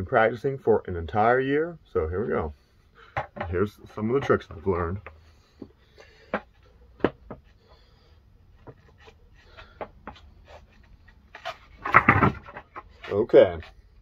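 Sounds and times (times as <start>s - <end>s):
skateboard clattering on floor: 11.4s - 12.9s.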